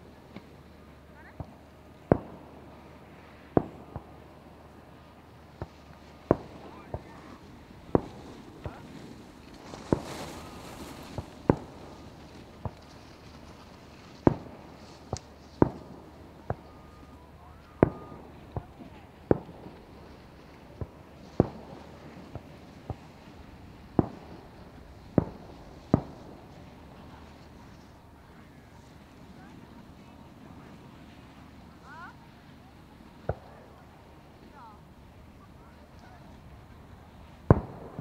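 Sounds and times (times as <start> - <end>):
hissing crackle of burning stars: 0.0 - 38.0
firework shells bursting: 1.3 - 16.9, 17.7 - 27.2, 35.9 - 38.0.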